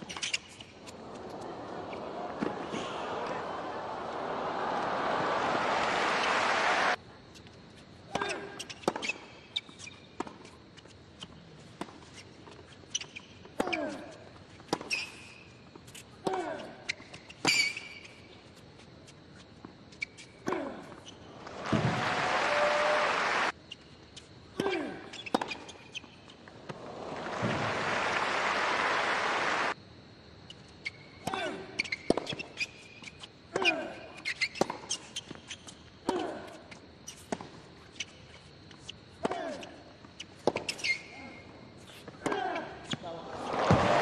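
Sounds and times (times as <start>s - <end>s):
shoe squeaks: 0.0s - 1.0s, 8.2s - 16.2s, 16.8s - 21.4s, 23.6s - 26.4s, 30.5s - 31.2s, 31.8s - 43.1s
crowd applause: 1.0s - 7.0s, 21.4s - 23.5s, 26.7s - 29.8s, 43.4s - 44.0s
tennis ball bounces: 21.4s - 22.0s, 42.2s - 44.0s.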